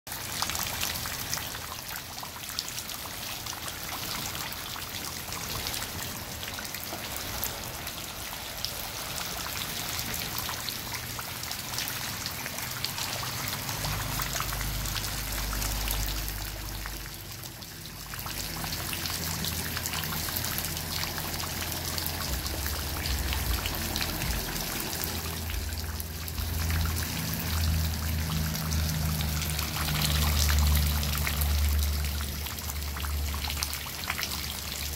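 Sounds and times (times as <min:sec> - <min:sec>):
rain falling into puddles: 0:00.1 - 0:34.9
low rumble: 0:14.0 - 0:33.7.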